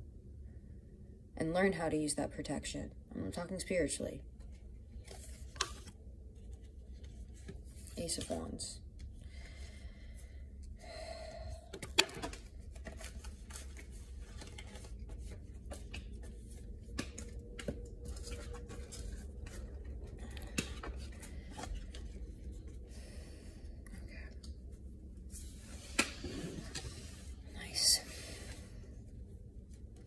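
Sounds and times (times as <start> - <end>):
cards shuffling: 4.5 - 8.6, 11.7 - 22.8.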